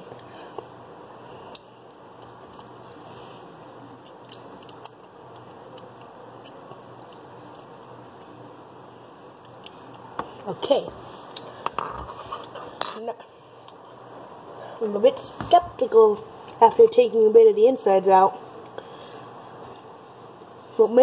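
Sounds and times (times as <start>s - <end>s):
steady low hum: 0.0s - 21.0s
person chewing food: 4.0s - 8.3s, 9.3s - 10.5s.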